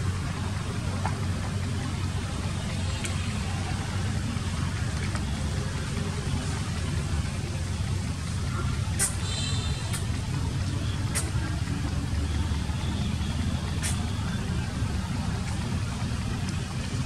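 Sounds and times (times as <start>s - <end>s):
low outdoor rumble: 0.0s - 17.0s
faint sharp clicks: 9.9s - 11.5s.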